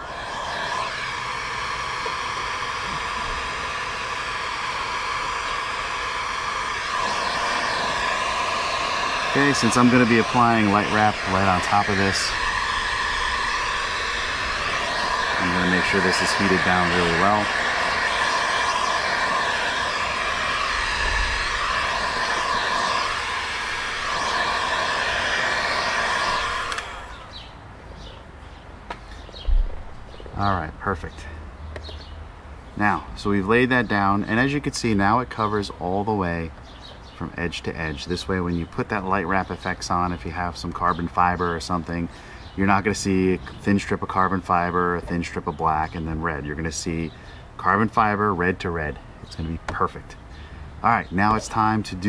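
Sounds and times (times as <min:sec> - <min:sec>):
heat gun blowing: 0:00.0 - 0:27.5, 0:42.1 - 0:43.9.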